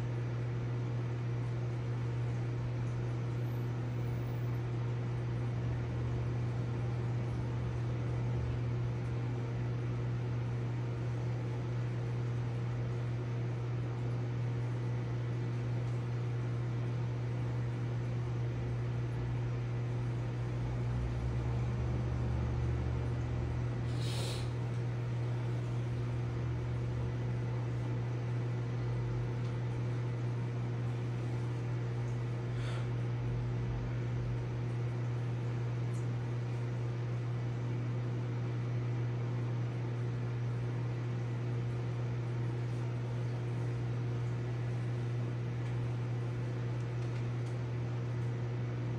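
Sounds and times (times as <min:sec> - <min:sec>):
aquarium equipment humming: 0:00.0 - 0:48.9
short hiss: 0:23.9 - 0:24.6.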